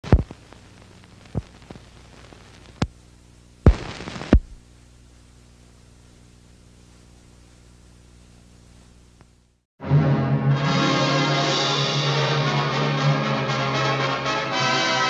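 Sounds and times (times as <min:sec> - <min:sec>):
steady low hum: 0:00.0 - 0:09.7
loud thumps: 0:03.7 - 0:04.6.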